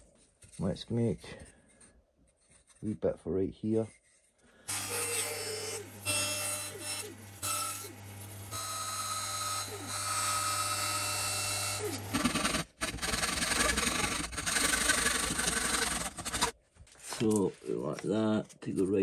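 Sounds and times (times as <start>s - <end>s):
bandsaw humming: 4.7s - 16.5s
handsaw cutting wood: 4.7s - 16.6s.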